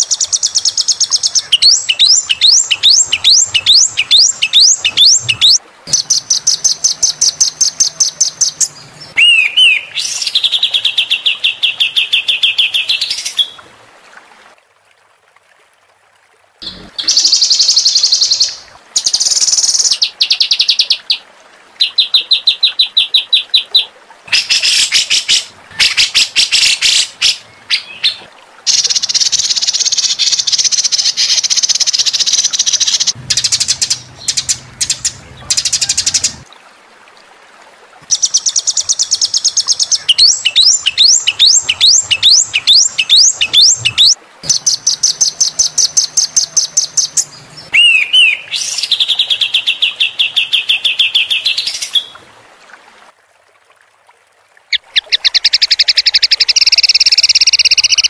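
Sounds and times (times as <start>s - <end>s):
songbird trilling: 0.2s - 10.4s, 38.1s - 49.0s, 54.7s - 58.0s.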